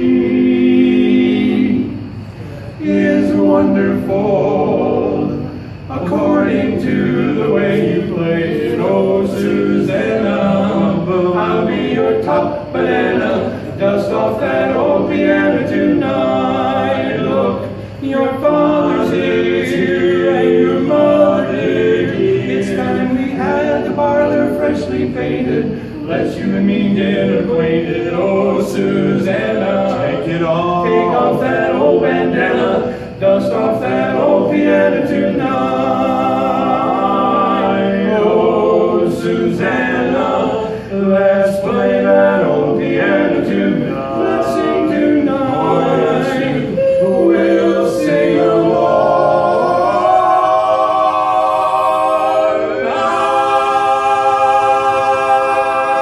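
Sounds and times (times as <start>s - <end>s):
male quartet singing a cappella: 0.0s - 56.0s.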